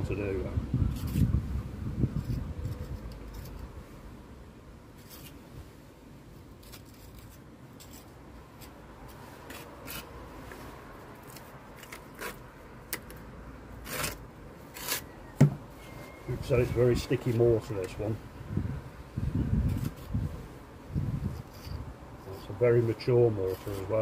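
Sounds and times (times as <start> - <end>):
trowel scraping mortar: 6.6 - 10.1, 11.2 - 12.4, 13.8 - 15.1, 21.3 - 24.0.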